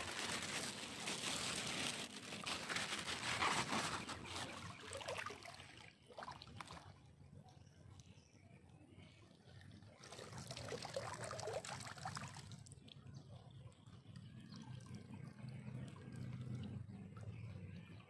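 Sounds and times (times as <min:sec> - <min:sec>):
water pouring and splashing: 0:00.0 - 0:08.2, 0:09.0 - 0:18.0
water trickling and dripping: 0:04.3 - 0:18.0.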